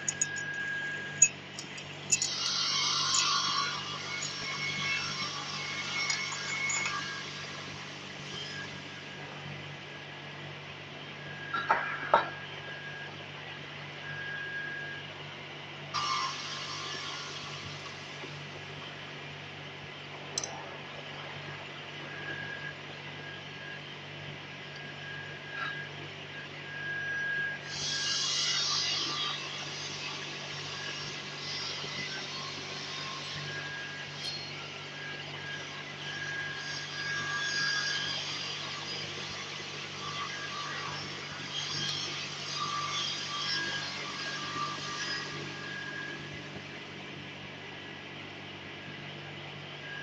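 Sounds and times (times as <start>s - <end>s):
steady low hum: 0.0s - 11.9s.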